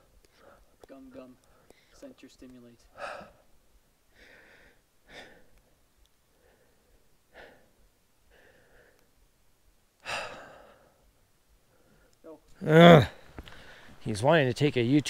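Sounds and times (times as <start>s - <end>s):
person breathing: 0.0s - 0.8s, 1.4s - 2.0s, 4.1s - 5.7s, 6.3s - 9.2s, 10.0s - 12.2s, 13.2s - 14.0s.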